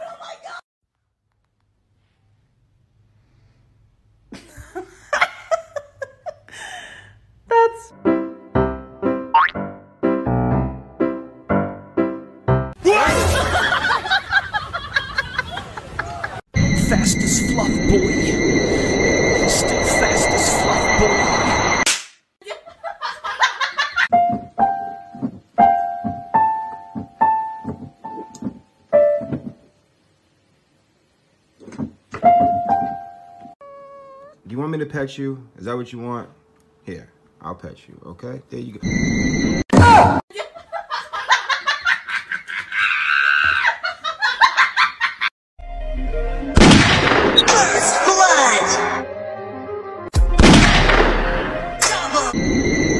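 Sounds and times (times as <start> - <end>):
loud noisy sound with high tone: 16.6 - 21.9.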